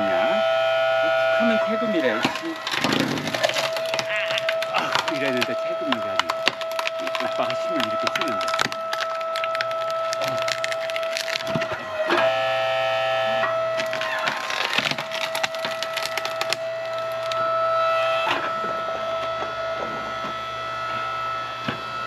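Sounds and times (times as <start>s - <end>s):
chord of higher tones: 0.0s - 2.8s
log splitter machine tone: 0.0s - 22.0s
wood cracking and splintering: 2.0s - 12.3s, 13.6s - 17.6s.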